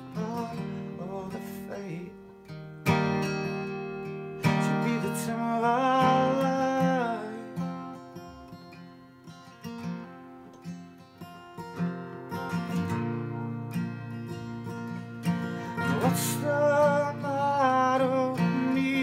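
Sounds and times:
acoustic guitar chord strums: 0.0s - 19.0s.

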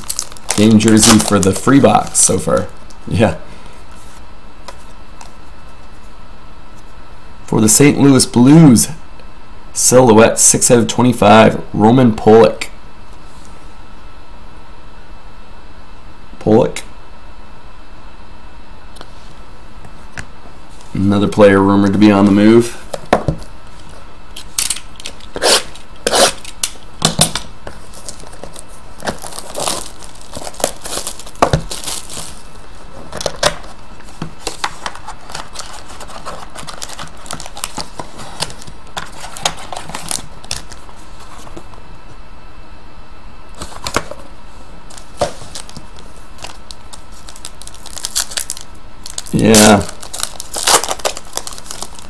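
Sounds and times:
card wrappers crinkling: 0.0s - 2.9s, 27.6s - 41.6s, 44.8s - 52.0s.

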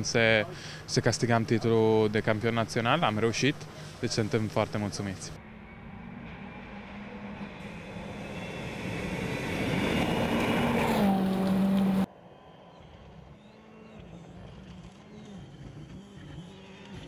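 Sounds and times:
rally car engine passing: 5.4s - 17.0s.

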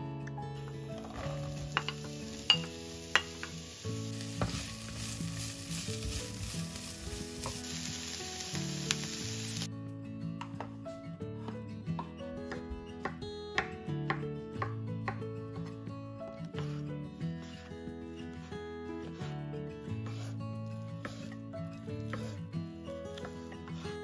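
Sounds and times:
acoustic guitar music: 0.0s - 24.0s
onions sizzling in frying pan: 0.6s - 9.7s.

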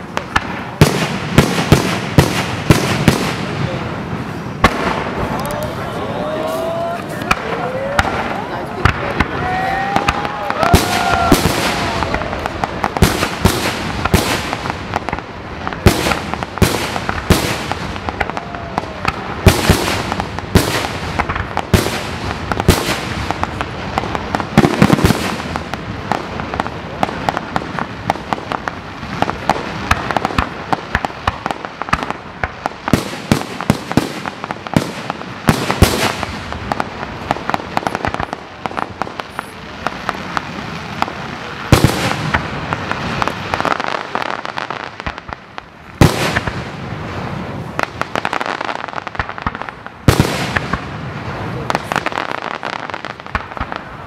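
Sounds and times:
fireworks bursting with sharp bangs: 0.0s - 54.0s
fireworks crackle: 0.0s - 54.0s.

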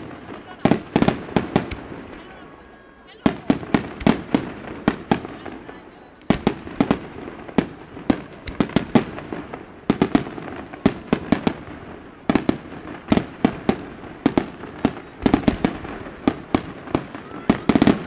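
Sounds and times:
firework shells bursting: 3.6s - 5.3s.

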